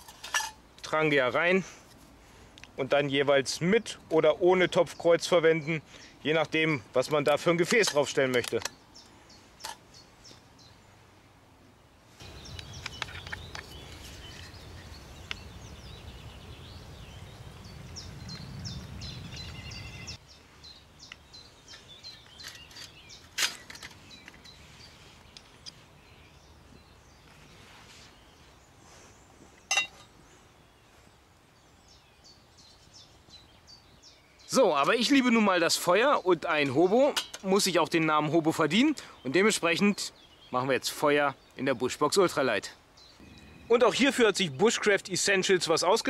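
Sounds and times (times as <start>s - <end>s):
small birds chirping: 0.0s - 46.0s.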